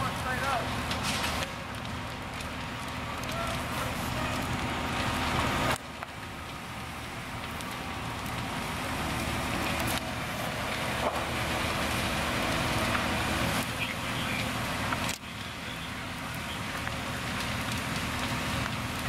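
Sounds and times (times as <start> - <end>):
burning structure crackling: 0.0 - 19.0
diesel fire engine running: 0.0 - 19.0.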